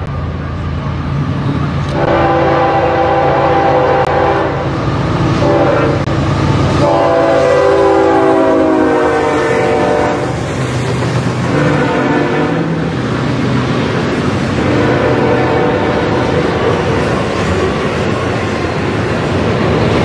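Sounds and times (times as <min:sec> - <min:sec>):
locomotive air horn blasts: 0:01.9 - 0:04.7, 0:05.4 - 0:06.1, 0:06.8 - 0:10.4, 0:11.5 - 0:12.8, 0:14.6 - 0:16.4.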